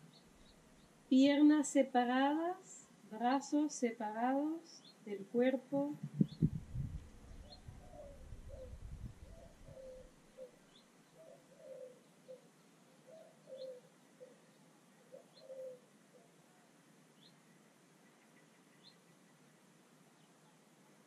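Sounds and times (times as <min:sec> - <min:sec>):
low rumble: 0:06.0 - 0:09.8
dove cooing: 0:06.0 - 0:14.4, 0:15.0 - 0:16.4
small bird chirping: 0:06.0 - 0:15.8.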